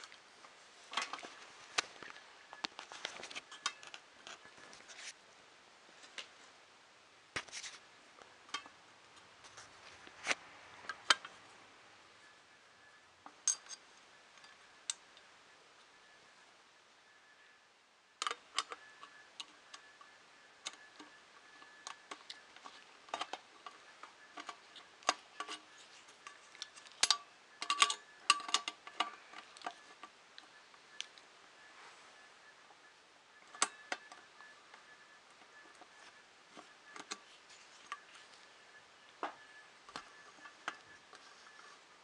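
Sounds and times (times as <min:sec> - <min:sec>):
washers and screws clinking: 0:13.4 - 0:13.9.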